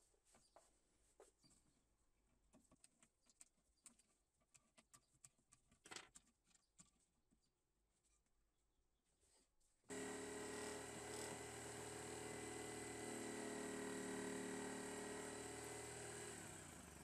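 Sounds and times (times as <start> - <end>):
faint metal clicks and taps: 2.3 - 7.5.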